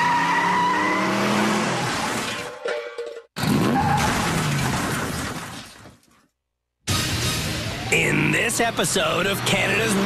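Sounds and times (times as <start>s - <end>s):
car tyres skidding: 0.0s - 2.3s.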